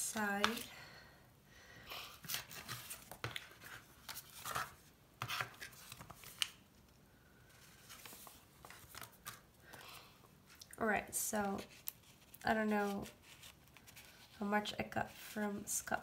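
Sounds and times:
paper rustling: 2.2 - 6.6, 7.5 - 9.5, 11.4 - 14.4.

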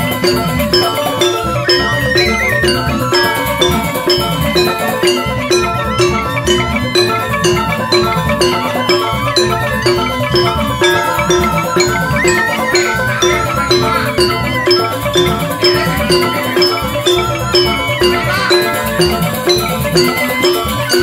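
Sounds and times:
bamboo flute: 0.0 - 21.0
gamelan ensemble playing: 0.0 - 21.0
hand drums: 0.0 - 21.0.

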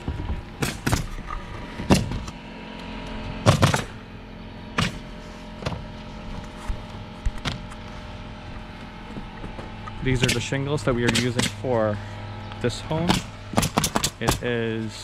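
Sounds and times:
low steady hum: 0.0 - 15.0
pneumatic nailer firing: 0.1 - 2.4, 3.4 - 4.0, 4.7 - 5.8, 10.2 - 11.7, 13.0 - 14.5.

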